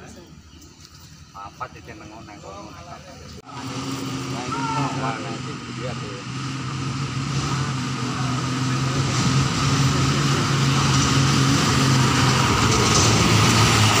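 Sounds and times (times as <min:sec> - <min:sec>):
dump truck diesel engine driving past: 0:03.4 - 0:14.0.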